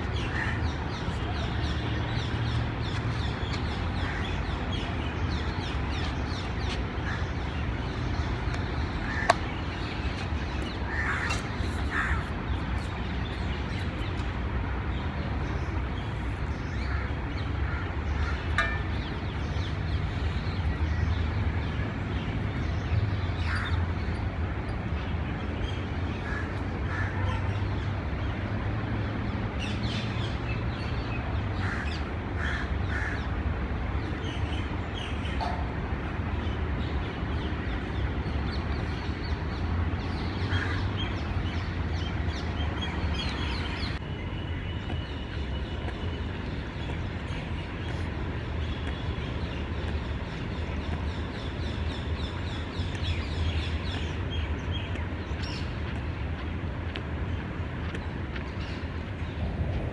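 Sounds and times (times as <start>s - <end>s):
birds calling: 0.0s - 14.3s.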